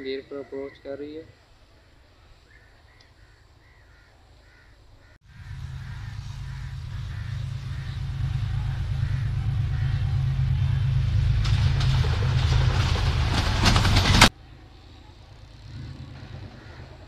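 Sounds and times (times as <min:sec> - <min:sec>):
train engine rumble: 0:05.3 - 0:17.0
train wheels clattering over rails: 0:05.4 - 0:14.3.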